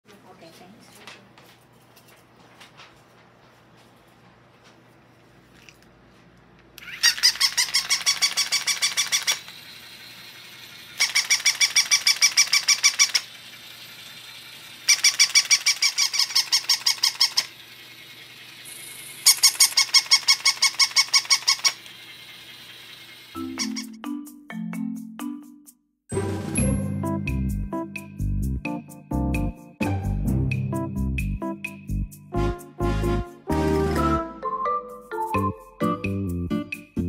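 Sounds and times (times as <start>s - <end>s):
toy dog electronic squeaky yips: 6.8s - 9.5s, 11.0s - 13.3s, 14.9s - 17.5s, 19.2s - 21.8s, 23.4s - 24.0s.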